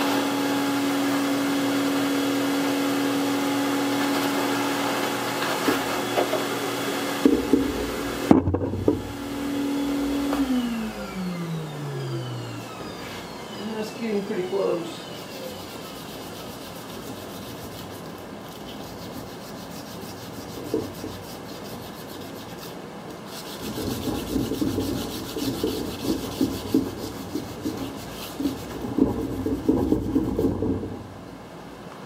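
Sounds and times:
sandpaper rubbing on metal: 0:13.7 - 0:30.6.

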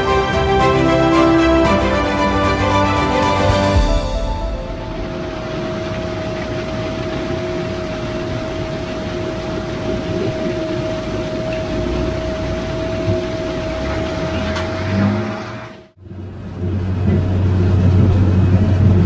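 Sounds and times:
constant mechanical whine: 0:04.9 - 0:19.0.

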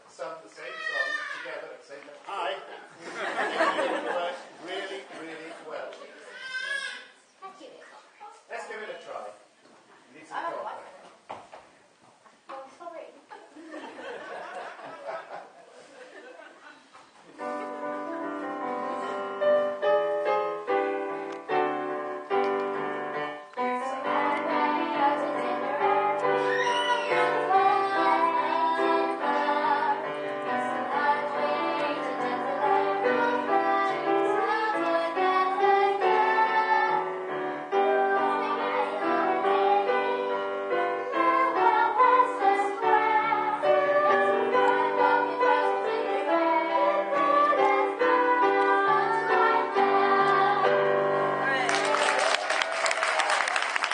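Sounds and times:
piano accompaniment: 0:17.4 - 0:51.9
girls singing a marching song: 0:41.2 - 0:50.8.

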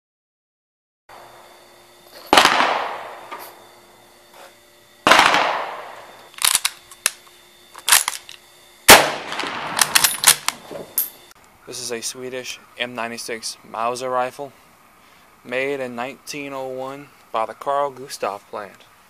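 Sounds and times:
rifle shots: 0:02.3 - 0:03.4, 0:05.0 - 0:06.7, 0:08.9 - 0:10.7.

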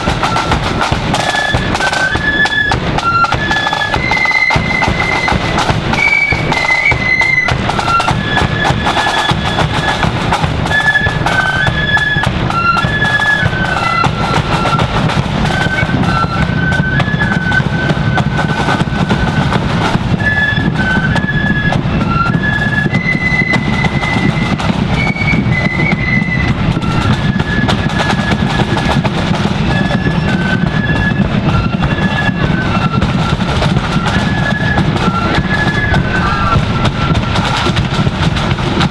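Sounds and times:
flutes playing melody: 0:00.0 - 0:38.9
bass drum drumming: 0:26.5 - 0:38.9.

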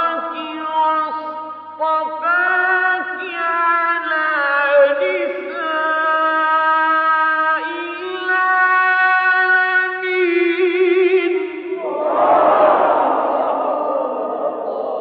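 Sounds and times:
man reciting melodically: 0:00.0 - 0:11.8.

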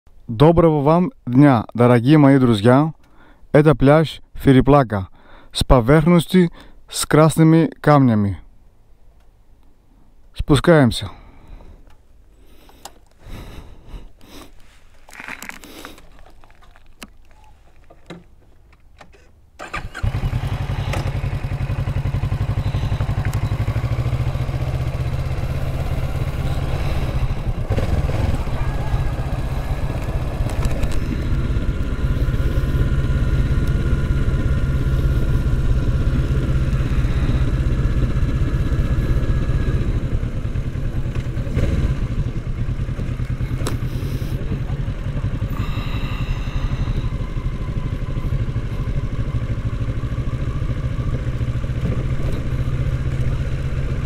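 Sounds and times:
motorcycle engine running: 0:19.7 - 0:54.0.

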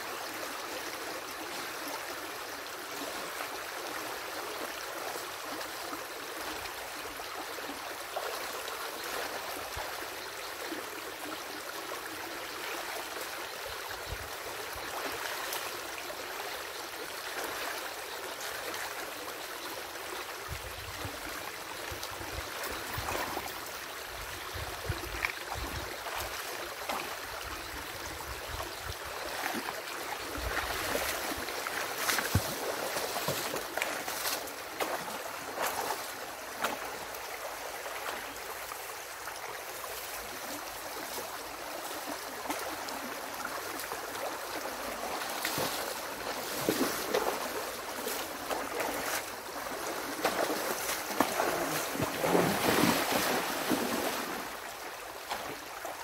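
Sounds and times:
stream rushing and gurgling: 0:00.0 - 0:56.0
splashes and knocks of sticks: 0:30.4 - 0:36.9, 0:45.1 - 0:54.5.

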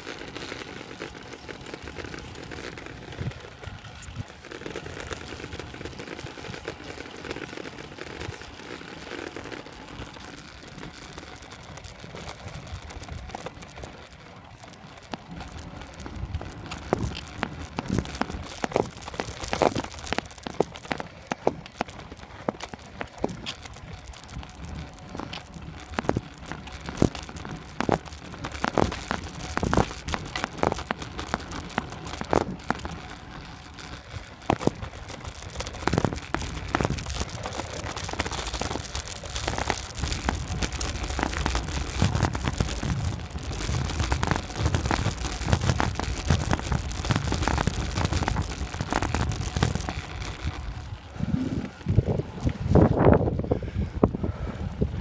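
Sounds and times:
microphone crackles and rattles: 0:00.0 - 0:55.0
wind rushing on microphone: 0:50.7 - 0:55.0.

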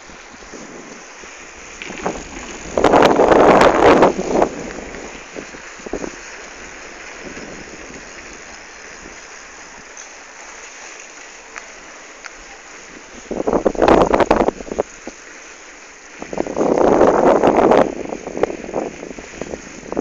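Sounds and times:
wind rushing over microphone: 0:00.0 - 0:09.2, 0:12.8 - 0:15.1, 0:16.1 - 0:20.0.

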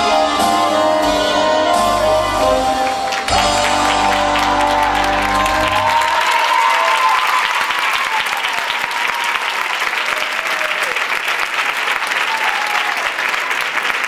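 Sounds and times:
dance music: 0:00.0 - 0:06.6
audience applauding: 0:02.7 - 0:14.0.

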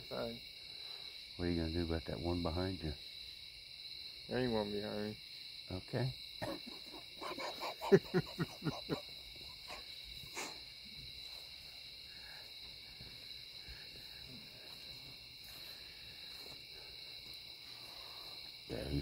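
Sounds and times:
night insects chirring: 0:00.0 - 0:19.0.

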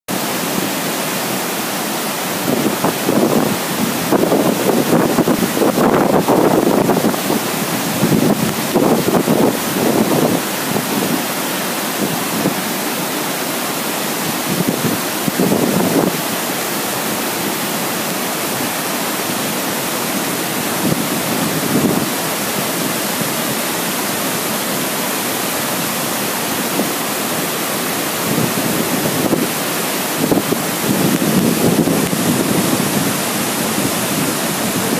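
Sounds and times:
rush of waterfall: 0:00.1 - 0:34.9
wind buffeting microphone: 0:02.4 - 0:11.3, 0:14.2 - 0:16.4, 0:20.0 - 0:23.7, 0:28.1 - 0:34.9.

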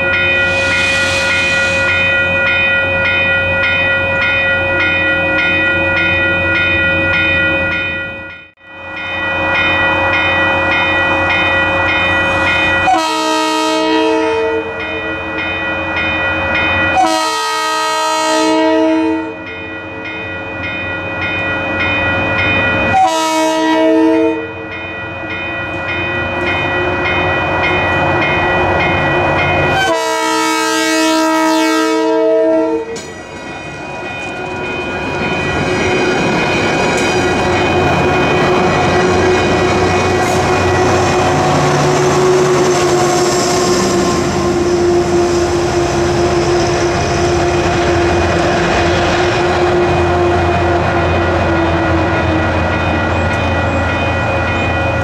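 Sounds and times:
crossing bell ringing: 0:00.0 - 0:55.0
diesel locomotive engine: 0:00.0 - 0:55.0
train horn blasts: 0:12.3 - 0:14.8, 0:16.9 - 0:19.5, 0:22.9 - 0:24.6, 0:29.7 - 0:33.0, 0:38.5 - 0:52.4
train wheels rumbling on rail: 0:24.5 - 0:55.0.

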